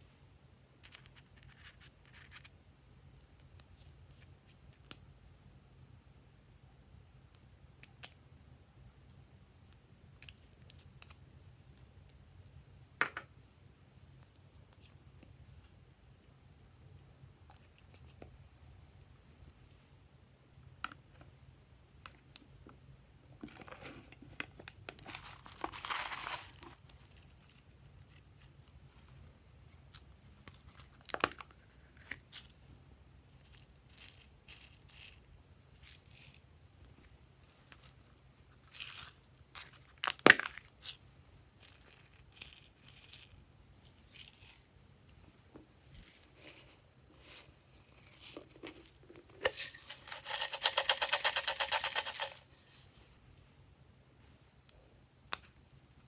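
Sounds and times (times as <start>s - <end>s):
rustling: 23.4s - 32.6s
small pieces rattling in container: 49.5s - 52.4s.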